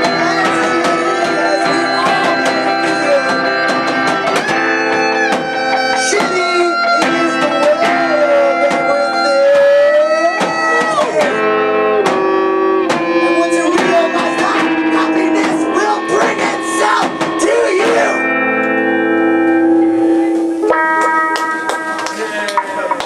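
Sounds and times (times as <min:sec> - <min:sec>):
drum kit: 0:00.0 - 0:18.3
bending held lead notes: 0:00.0 - 0:23.0
electric guitar: 0:00.0 - 0:23.0.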